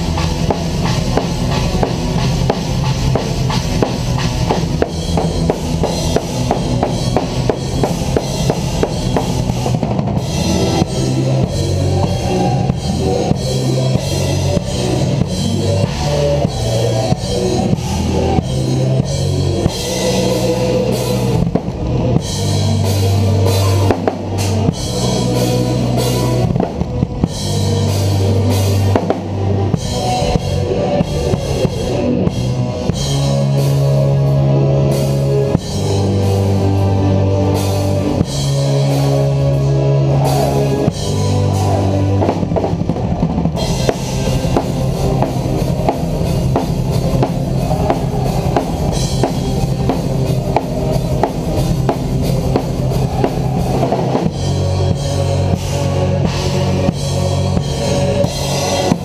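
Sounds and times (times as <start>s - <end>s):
sustained bass notes: 0.0s - 59.0s.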